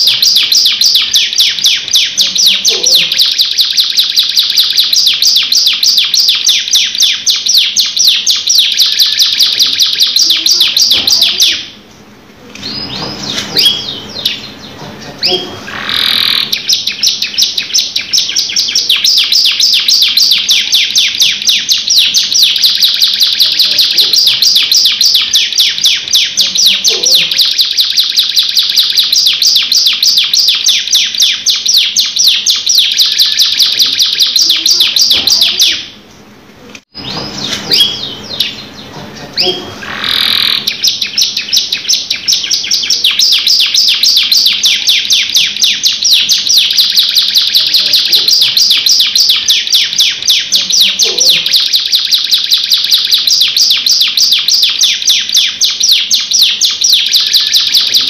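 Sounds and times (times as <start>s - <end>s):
canary trilling: 0.0s - 36.3s, 36.9s - 58.0s.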